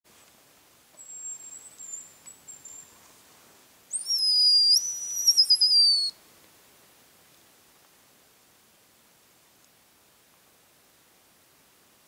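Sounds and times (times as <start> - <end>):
high bird whistles: 1.0 - 2.8, 3.9 - 6.2.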